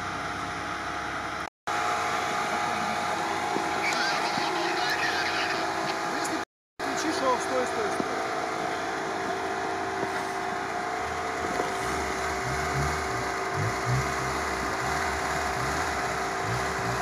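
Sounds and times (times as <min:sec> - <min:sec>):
car engine running under load: 0:00.0 - 0:17.0
steady whine: 0:00.0 - 0:17.0
uneven low rumble: 0:11.0 - 0:17.0.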